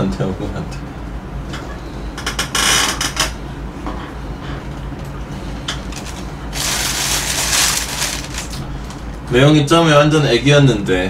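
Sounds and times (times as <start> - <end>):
low steady hum: 0.0 - 11.0
plastic bag rustling: 5.8 - 9.1.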